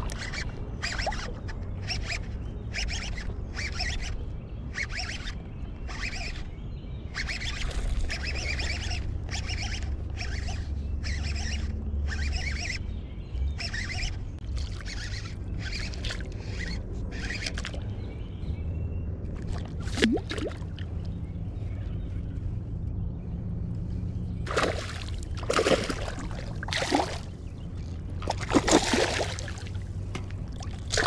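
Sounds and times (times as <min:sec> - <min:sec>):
fishing reel cranking: 0:00.0 - 0:06.5, 0:07.1 - 0:17.8, 0:28.3 - 0:29.8.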